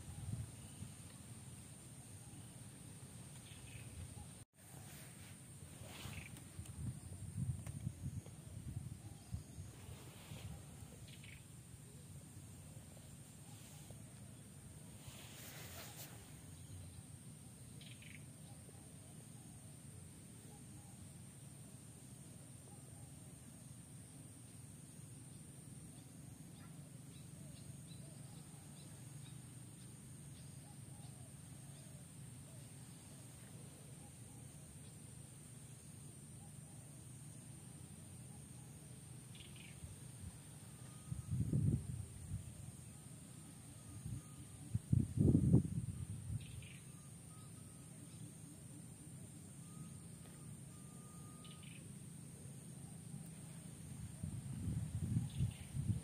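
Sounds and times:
high steady hiss: 0:00.0 - 0:56.0
low steady rumble: 0:00.0 - 0:56.0
distant bird chirps: 0:05.8 - 0:07.2, 0:08.3 - 0:18.9, 0:38.1 - 0:41.7, 0:46.3 - 0:48.7, 0:49.4 - 0:53.7
high hiss: 0:09.6 - 0:16.7
distant birds chirping: 0:10.7 - 0:13.6, 0:39.2 - 0:41.3, 0:49.6 - 0:52.1.

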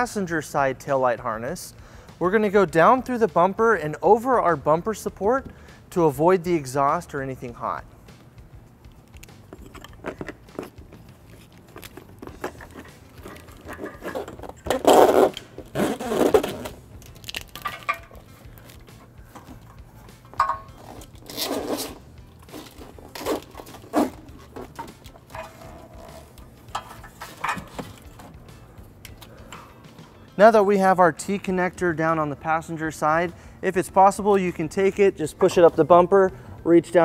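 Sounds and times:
wiring harness rustling and scraping: 0:09.2 - 0:29.4.

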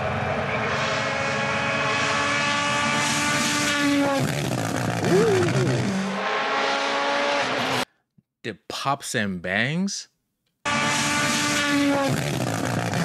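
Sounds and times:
rally car engine passing: 0:00.0 - 0:07.9.

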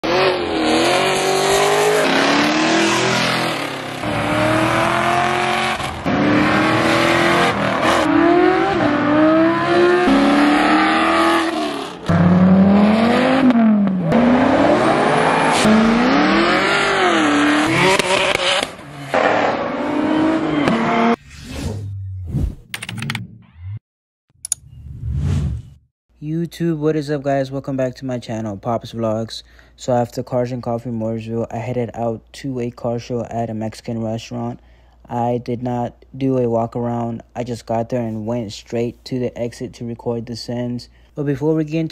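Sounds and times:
car engines revving: 0:00.0 - 0:21.2.

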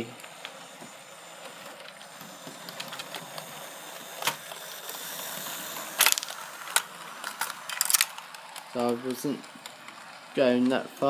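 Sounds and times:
model train motor whirring: 0:00.0 - 0:11.0
wheels clicking on track: 0:01.8 - 0:11.0.

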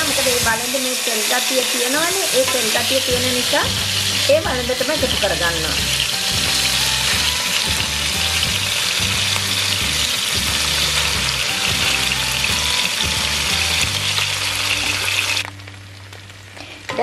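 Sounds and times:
pasta sizzling in hot fat: 0:00.0 - 0:17.0.

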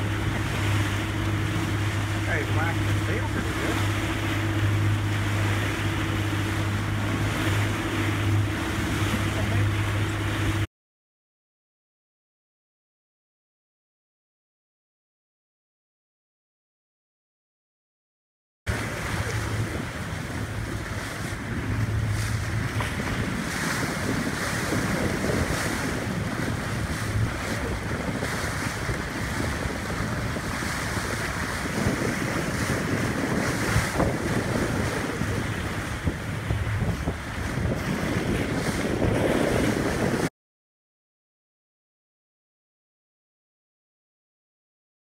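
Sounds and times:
low boat engine hum: 0:00.0 - 0:10.7, 0:18.7 - 0:40.3
water washing around boat: 0:00.0 - 0:10.7, 0:18.7 - 0:40.3
wind buffeting microphone: 0:18.7 - 0:40.3.

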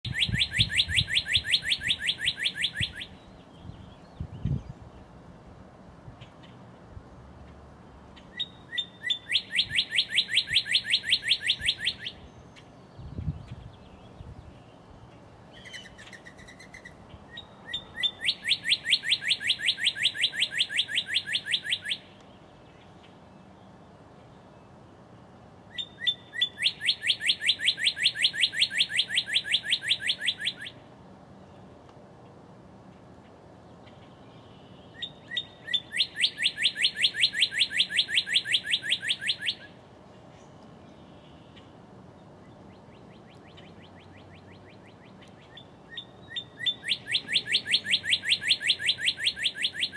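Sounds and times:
bird singing whistles: 0:00.1 - 0:04.8, 0:08.4 - 0:12.4, 0:15.6 - 0:22.1, 0:25.7 - 0:30.8, 0:34.4 - 0:39.8, 0:43.2 - 0:49.9.

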